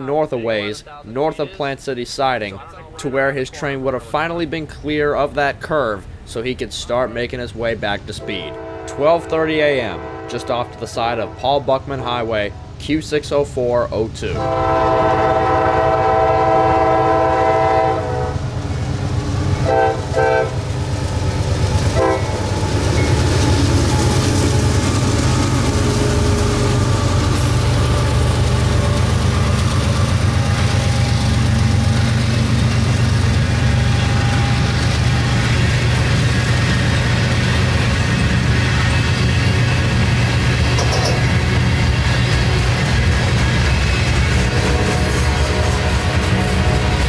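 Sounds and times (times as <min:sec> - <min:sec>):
diesel locomotive engines revving: 0:02.2 - 0:47.0
locomotive horn blasts: 0:08.2 - 0:11.6, 0:14.3 - 0:18.4, 0:19.6 - 0:20.6, 0:22.0 - 0:27.6, 0:44.4 - 0:47.0
freight cars rumbling by: 0:17.1 - 0:47.0.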